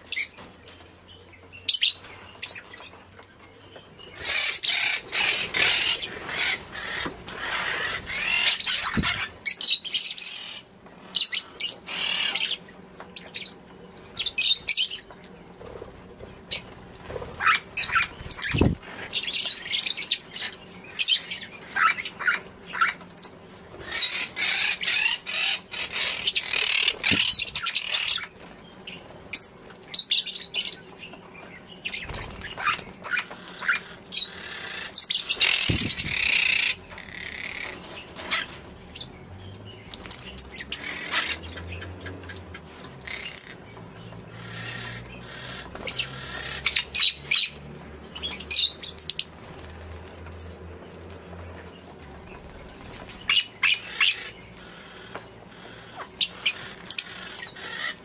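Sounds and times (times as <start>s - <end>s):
lovebirds chattering: 0.0s - 49.7s, 50.3s - 58.0s
wings fluttering: 4.2s - 9.8s, 14.1s - 30.7s, 31.8s - 39.1s, 48.3s - 58.0s.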